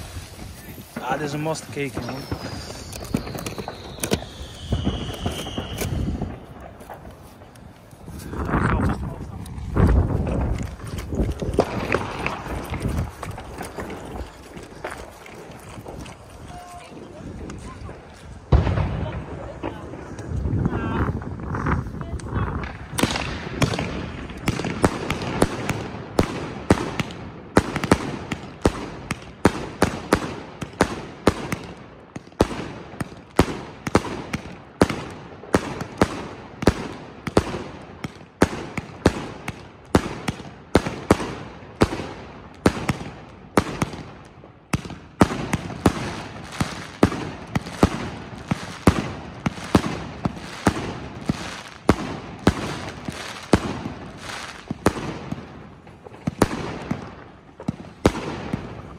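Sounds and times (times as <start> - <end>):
fireworks banging: 0.0 - 58.9.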